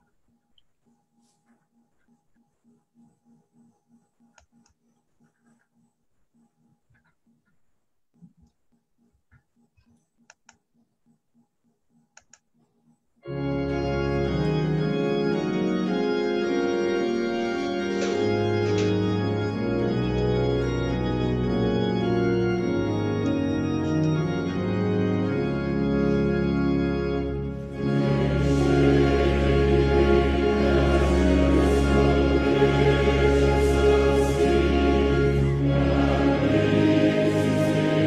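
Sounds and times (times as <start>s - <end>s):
faint clicks: 6.9s - 10.8s, 11.4s - 13.0s
organ playing chords: 13.2s - 38.0s.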